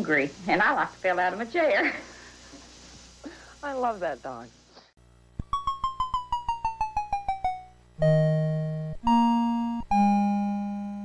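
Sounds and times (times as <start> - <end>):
electronic keyboard jingle: 5.5 - 11.0.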